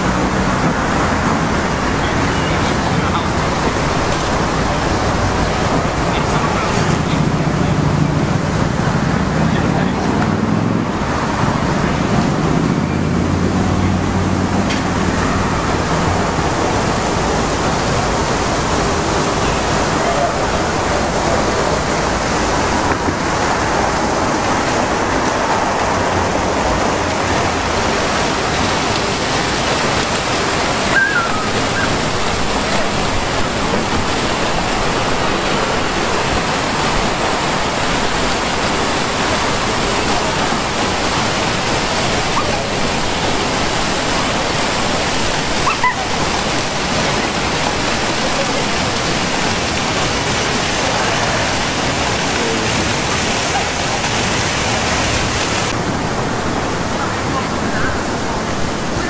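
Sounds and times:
fountain water splashing: 0.0 - 59.0.

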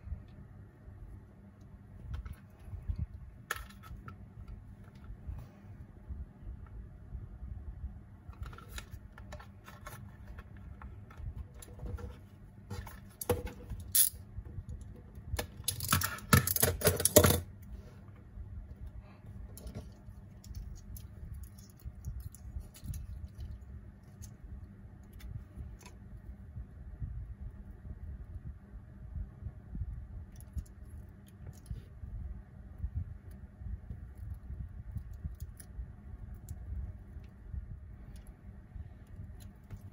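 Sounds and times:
low room hum: 0.0 - 39.9.

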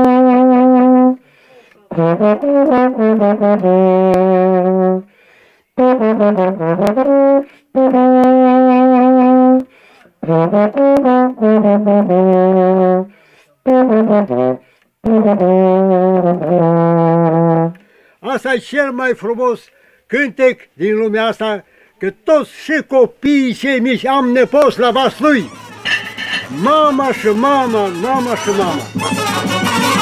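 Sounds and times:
baritone horn solo melody: 0.0 - 1.2, 1.9 - 5.1, 5.8 - 17.8, 23.6 - 30.0.

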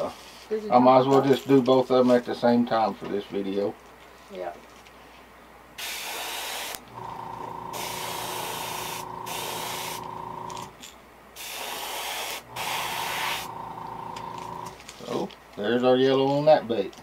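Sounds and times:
airbrush spraying hiss: 5.8 - 6.8, 7.7 - 10.1, 11.4 - 13.5
air compressor motor humming: 5.8 - 10.8, 11.4 - 14.8.

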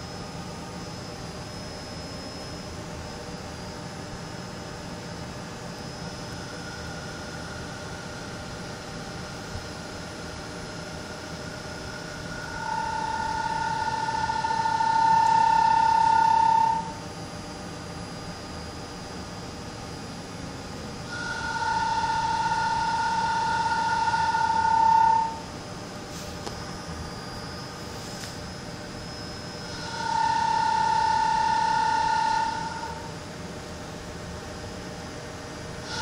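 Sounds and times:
lathe machine hum: 0.0 - 36.0
steady whistling tone: 10.9 - 17.0, 21.1 - 25.4, 26.6 - 33.2.

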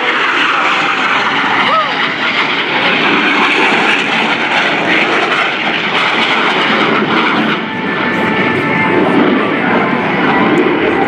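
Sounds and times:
jet engines roaring: 0.0 - 11.0.

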